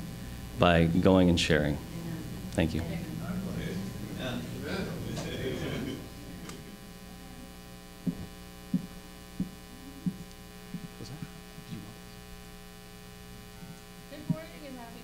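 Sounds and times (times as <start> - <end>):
electrical mains hum: 0.0 - 15.0
footsteps on platform: 8.0 - 11.0.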